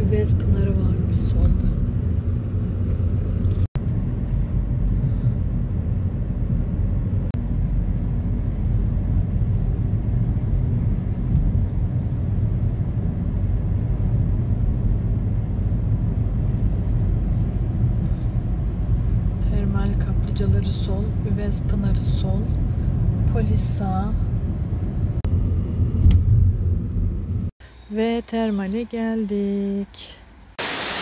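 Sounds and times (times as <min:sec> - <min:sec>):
car engine and tyre noise: 0:00.0 - 0:27.9.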